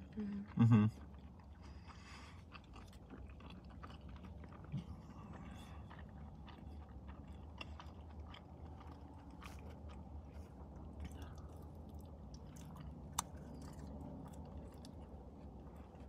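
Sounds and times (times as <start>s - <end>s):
man chewing food: 0.0s - 16.0s
low hum: 3.8s - 16.0s.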